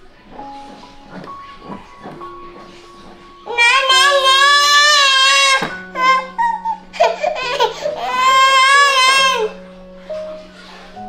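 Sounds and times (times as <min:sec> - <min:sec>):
toddler crying: 0:03.4 - 0:09.6.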